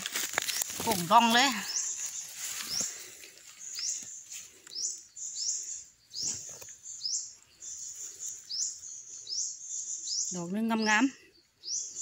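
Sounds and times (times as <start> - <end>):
footsteps crunching dry leaves: 0.0 - 4.8.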